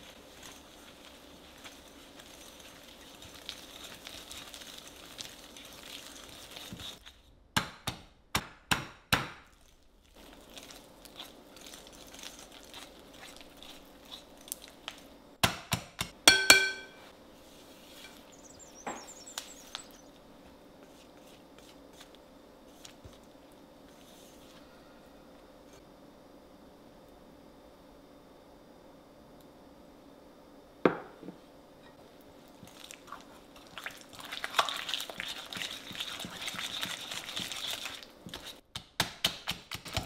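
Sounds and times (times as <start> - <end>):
whisk scraping in a bowl: 0.0 - 7.1, 10.2 - 14.8, 32.7 - 38.6
glass bowl ringing: 16.3 - 17.0
whisk wires clinking against glass: 16.3 - 17.0.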